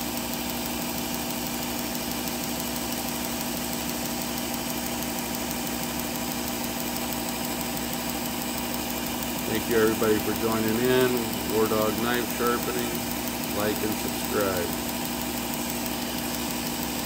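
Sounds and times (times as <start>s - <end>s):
knife sharpener motor humming: 7.7s - 17.0s.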